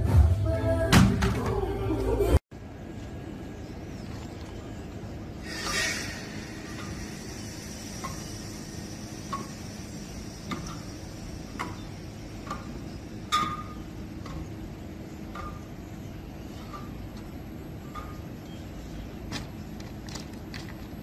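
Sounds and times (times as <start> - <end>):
brief scraping rush: 5.4 - 8.0.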